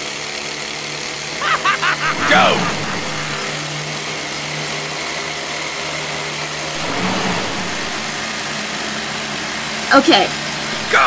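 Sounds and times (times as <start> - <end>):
faint high whine: 6.7 - 8.5.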